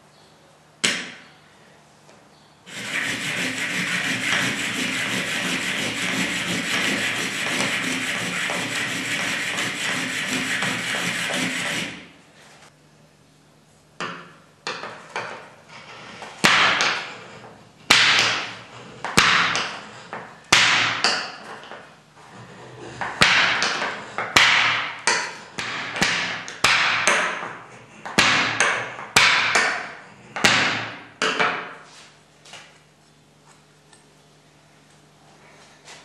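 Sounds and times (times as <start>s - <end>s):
metallic rasp of steel on steel: 2.7s - 12.1s.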